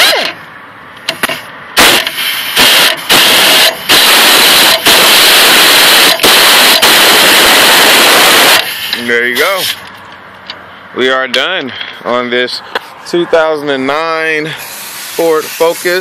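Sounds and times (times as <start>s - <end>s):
impact wrench hammering: 1.0s - 7.0s.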